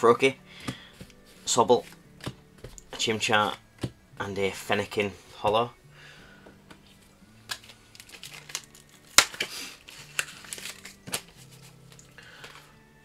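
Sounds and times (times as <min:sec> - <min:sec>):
foil wrapper crinkling and tearing: 0:07.5 - 0:12.6.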